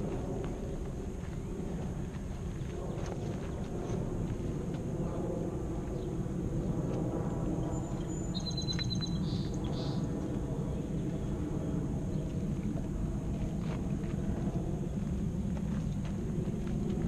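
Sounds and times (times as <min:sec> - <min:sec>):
bird trilling: 0:07.9 - 0:10.1.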